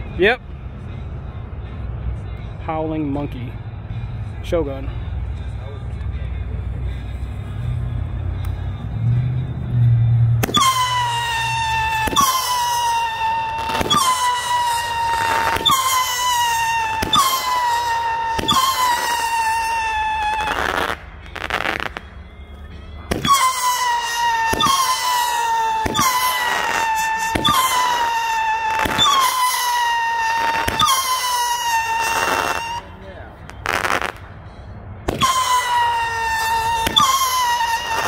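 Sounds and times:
firework launch bangs: 10.4s - 22.1s, 23.1s - 32.8s, 35.0s - 38.0s
firework whistling: 10.4s - 22.1s, 23.1s - 38.0s.

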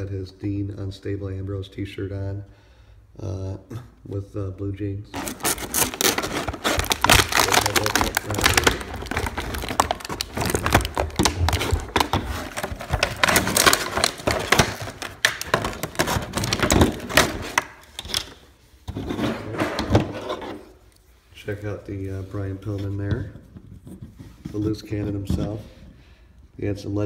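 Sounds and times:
plastic packaging crinkling: 5.1s - 18.4s.

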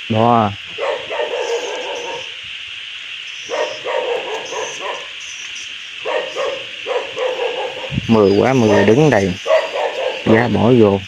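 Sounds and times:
steady high hiss: 0.0s - 11.0s
dog barking: 0.7s - 2.3s, 3.5s - 5.1s, 6.0s - 10.5s.

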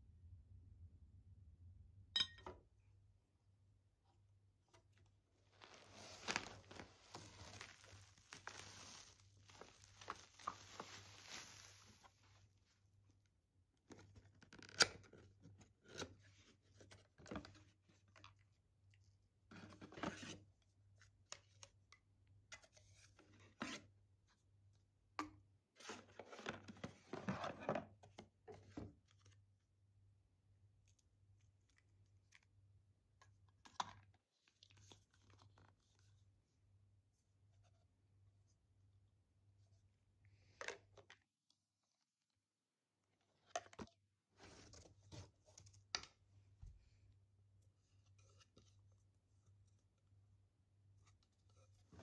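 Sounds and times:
paper rustling: 5.5s - 12.4s.

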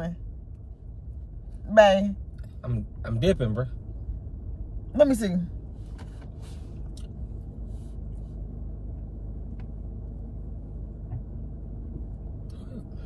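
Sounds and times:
car cabin engine and road rumble: 0.0s - 13.0s.

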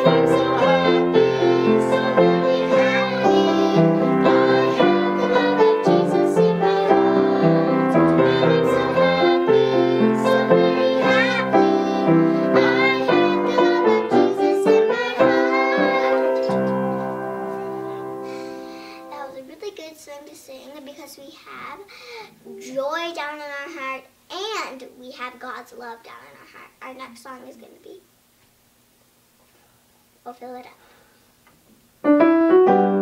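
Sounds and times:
girls singing together: 0.0s - 17.2s
grand piano accompaniment: 0.0s - 19.5s, 32.0s - 33.0s.

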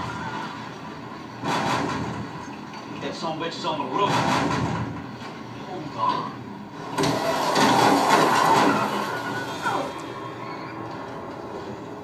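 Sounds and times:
vehicle and road noise: 0.0s - 12.0s
falling scream: 7.1s - 10.9s.

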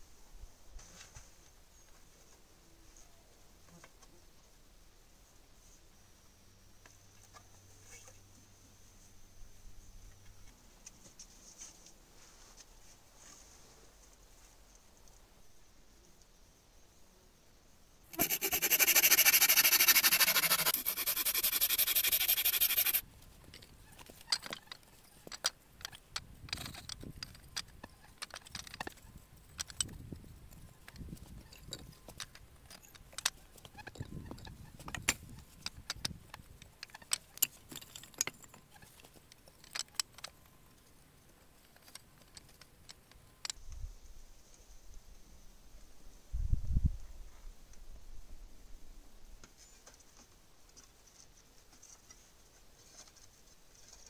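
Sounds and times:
loud rasping noise: 18.1s - 23.0s.

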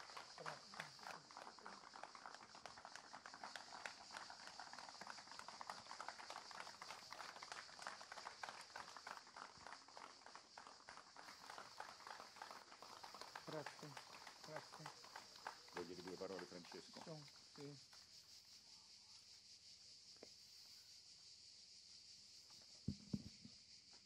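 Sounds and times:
audience applause: 0.0s - 17.3s
high-pitched hiss: 0.0s - 24.0s.

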